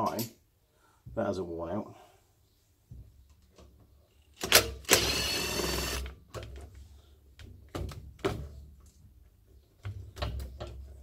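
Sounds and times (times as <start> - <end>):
cordless driver running: 4.8 - 6.1.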